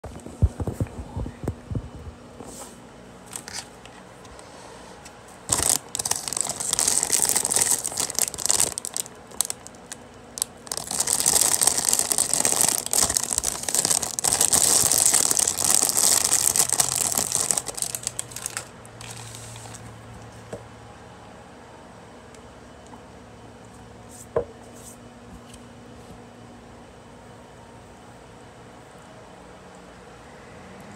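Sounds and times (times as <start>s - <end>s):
plastic packet crinkling: 5.5s - 19.9s.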